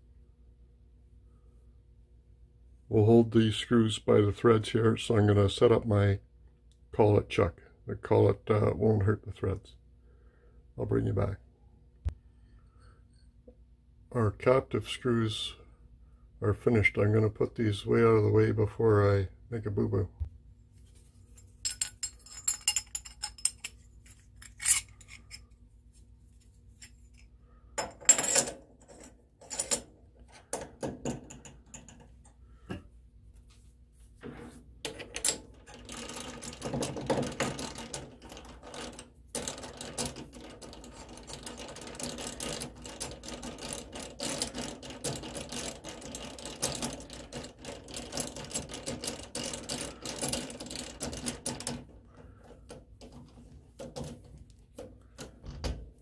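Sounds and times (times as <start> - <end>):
metal parts and tools clinking: 21.3 - 25.6, 26.4 - 29.9.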